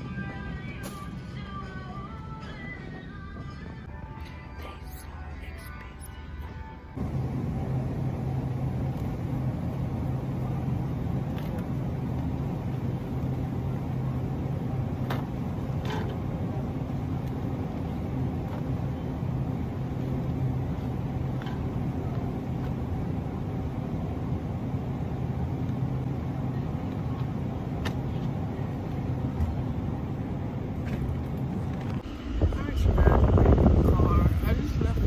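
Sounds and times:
car engine and road noise: 6.2 - 35.0.

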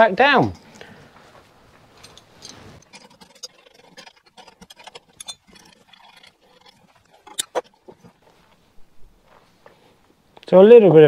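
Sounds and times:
metal clicks of spanners: 2.0 - 7.6.

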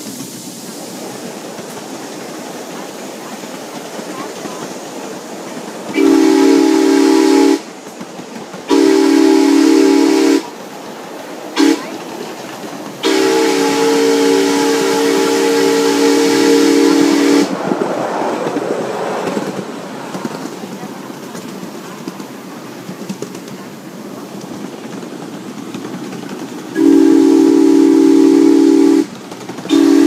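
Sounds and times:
steam hissing: 0.0 - 30.0
train running noise: 0.0 - 30.0
steam locomotive whistle: 6.0 - 7.7, 8.7 - 10.6, 11.6 - 12.0, 13.0 - 17.6, 26.8 - 29.1, 29.7 - 30.0.

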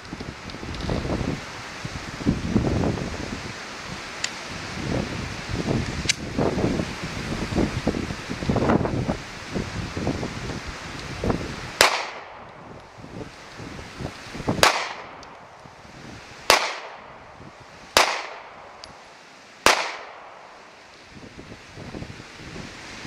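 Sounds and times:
pistol shots echoing: 11.8 - 12.5, 14.6 - 15.2, 16.5 - 17.2, 18.0 - 18.8, 19.6 - 20.6.

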